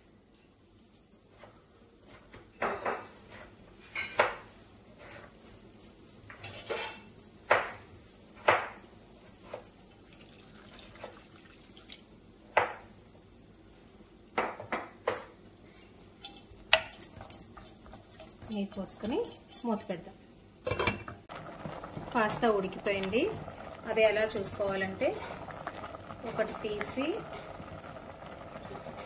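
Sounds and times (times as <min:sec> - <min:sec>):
metal utensils and pots clinking: 0:00.7 - 0:11.9, 0:14.6 - 0:20.0, 0:20.6 - 0:21.3, 0:21.9 - 0:29.0.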